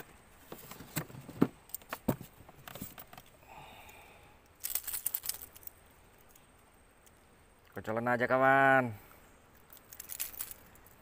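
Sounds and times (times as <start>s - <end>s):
metal lip grip rattling clicks: 9.6s - 11.0s.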